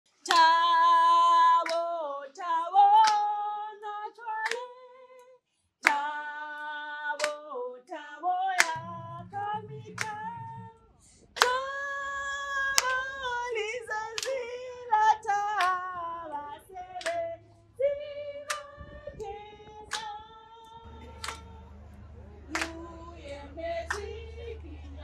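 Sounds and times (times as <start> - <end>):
sharp hand clap: 0.2 - 0.7, 1.6 - 2.0, 3.0 - 3.4, 4.4 - 4.7, 7.2 - 7.4, 8.6 - 10.6, 12.6 - 13.5, 14.1 - 14.5, 15.4 - 15.9, 17.0 - 17.4, 18.4 - 18.8, 19.8 - 20.2, 20.9 - 25.0
woman singing unaccompanied: 0.2 - 10.8, 11.4 - 21.7.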